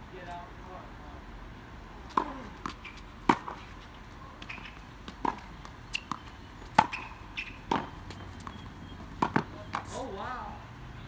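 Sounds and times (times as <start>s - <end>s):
tennis balls struck by rackets: 2.0s - 10.0s.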